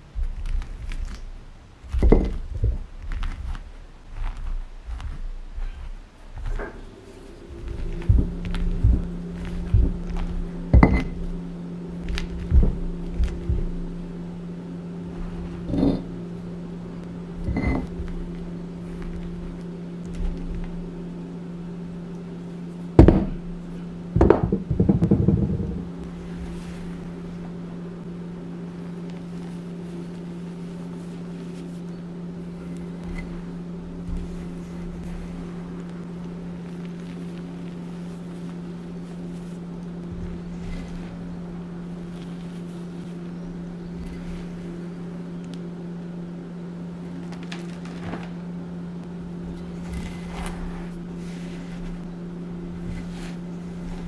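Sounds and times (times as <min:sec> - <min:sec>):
steady low hum: 0:00.0 - 0:54.0
rough grinding crunch: 0:00.2 - 0:14.2, 0:15.0 - 0:16.2
pestle knocking in stone mortar: 0:10.7 - 0:11.2.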